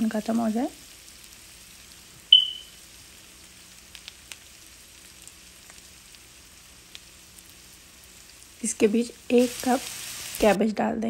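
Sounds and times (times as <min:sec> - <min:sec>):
potatoes sizzling in oil: 0:00.0 - 0:10.8
short high ping: 0:02.3 - 0:02.7.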